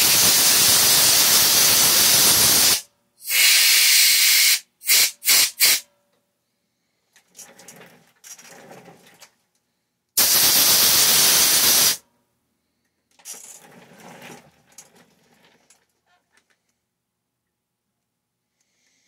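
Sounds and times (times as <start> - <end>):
loud pressurized hiss: 0.0 - 5.8, 10.2 - 12.0
rustling and small clicks: 12.8 - 16.8.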